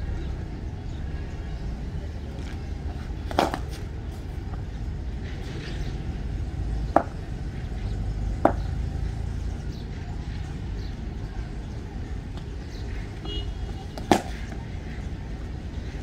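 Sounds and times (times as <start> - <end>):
cricket ball sharp knocks: 3.2 - 3.8, 6.9 - 7.2, 8.4 - 8.8, 13.9 - 14.6.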